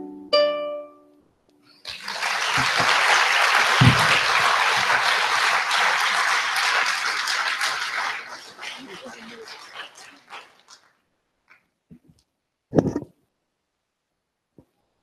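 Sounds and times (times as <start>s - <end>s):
audience applause: 1.8s - 11.0s.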